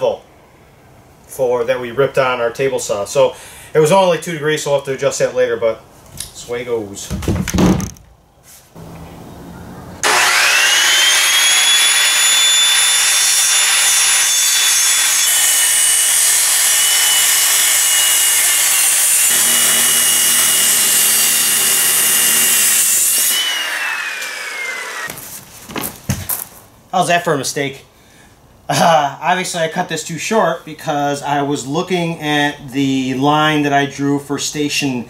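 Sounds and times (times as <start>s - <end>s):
circular saw cutting wood: 10.0s - 25.2s.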